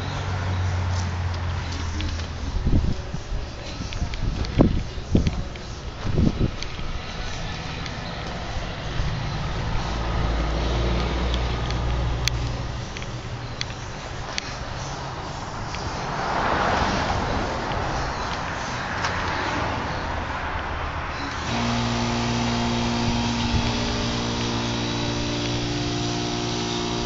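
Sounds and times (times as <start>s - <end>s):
steady machine noise: 21.2s - 27.0s
motor humming: 21.3s - 27.0s.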